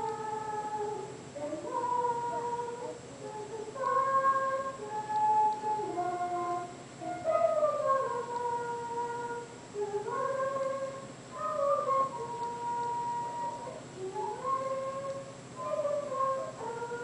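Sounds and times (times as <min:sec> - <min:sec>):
girl singing: 0:00.0 - 0:17.0
flute playing: 0:11.4 - 0:14.4.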